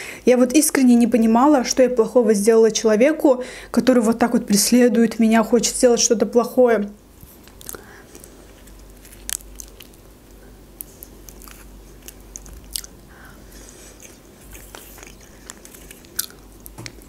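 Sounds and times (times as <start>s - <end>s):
wet chewing mouth sounds: 7.4s - 10.0s, 10.8s - 17.0s.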